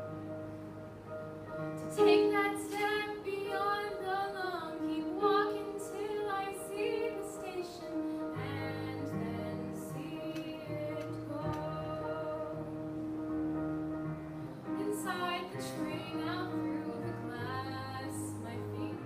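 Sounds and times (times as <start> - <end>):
girl singing: 1.9 - 12.7, 14.8 - 19.0.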